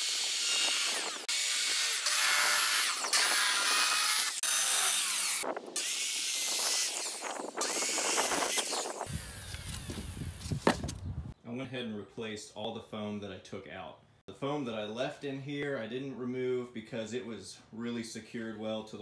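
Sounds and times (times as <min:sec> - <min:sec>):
circular saw cutting foam: 0:00.0 - 0:10.7.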